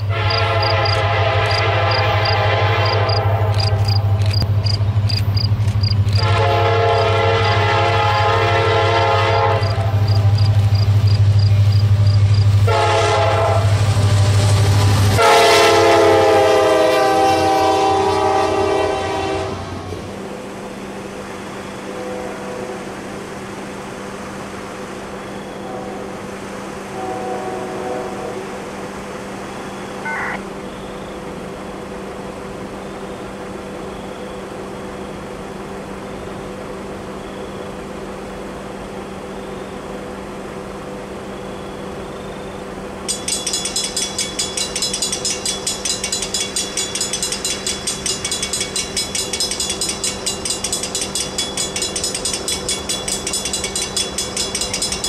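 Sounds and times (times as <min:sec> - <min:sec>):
railroad crossing bell ringing: 0:00.0 - 0:14.2, 0:43.0 - 0:55.0.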